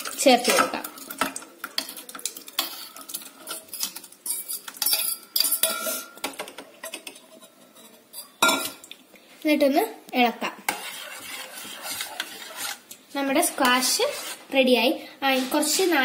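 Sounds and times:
fork scraping metal bowl: 10.7s - 14.6s, 15.3s - 16.0s.

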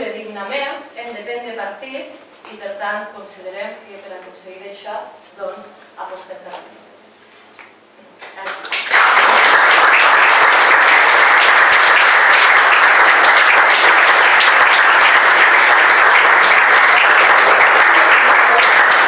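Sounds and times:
audience applauding: 8.4s - 19.0s.

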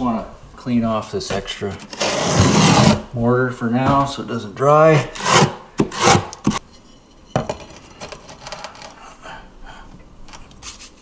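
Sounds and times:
trowel scraping mortar: 1.8s - 3.1s, 5.1s - 6.6s.

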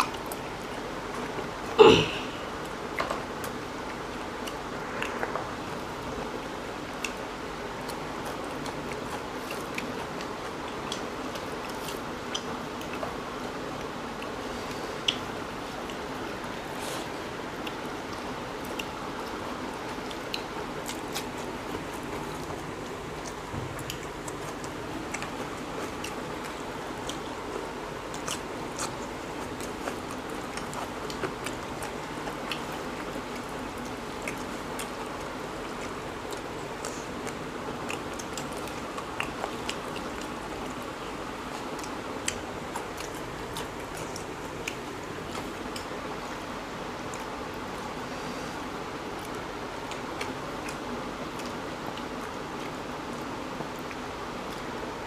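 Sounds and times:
chewing food: 0.0s - 55.0s
steady background noise: 0.0s - 55.0s.

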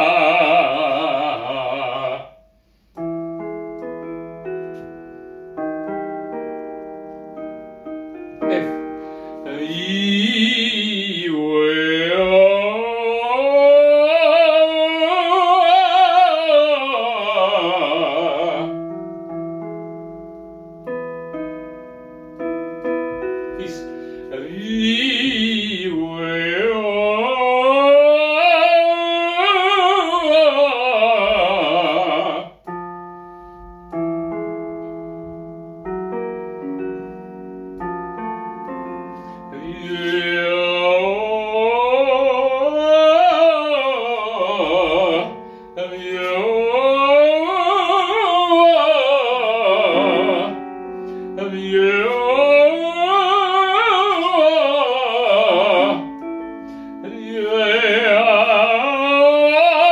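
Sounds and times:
man singing with vibrato: 0.0s - 3.2s, 8.4s - 19.1s, 23.2s - 33.0s, 38.2s - 59.9s
held piano notes: 0.0s - 59.9s.

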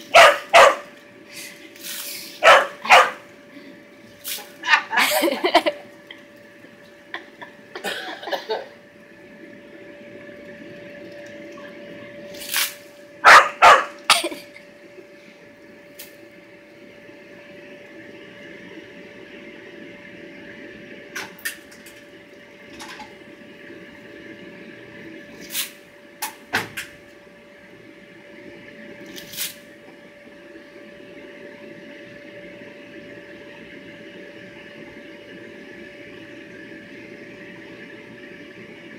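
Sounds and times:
electric blower drone: 0.0s - 21.1s.

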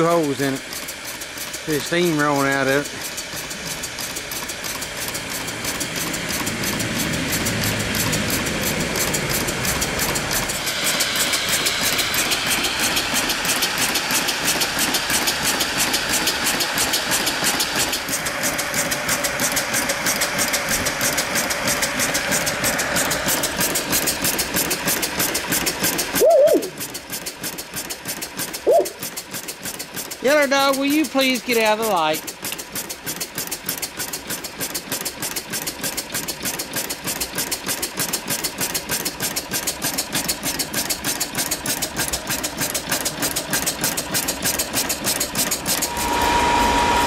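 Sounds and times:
steam hissing: 0.0s - 26.9s
steam engine exhaust chuffing: 0.0s - 47.0s.

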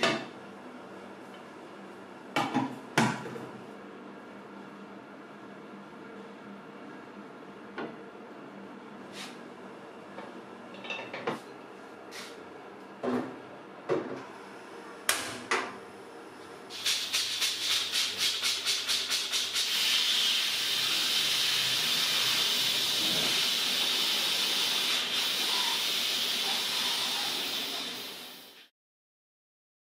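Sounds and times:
pressure cooker valve puffing steam: 16.7s - 28.7s
steam hissing from vent: 16.7s - 28.7s.

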